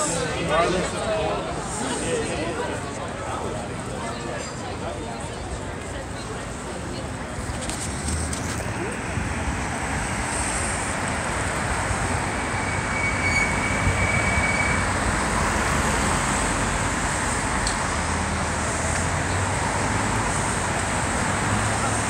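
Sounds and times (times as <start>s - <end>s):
cars driving through intersection: 5.7s - 22.0s.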